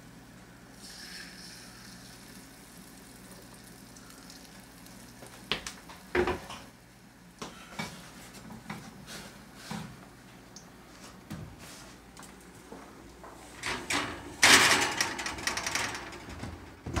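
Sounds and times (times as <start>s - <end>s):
batter sizzling in hot fat: 0.7s - 6.2s
sharp knocks and clatter: 13.6s - 17.0s.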